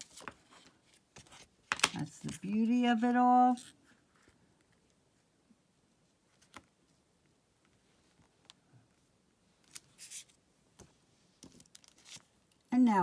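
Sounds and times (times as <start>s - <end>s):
paper rustling: 0.0s - 2.3s, 9.6s - 10.4s, 11.4s - 12.3s.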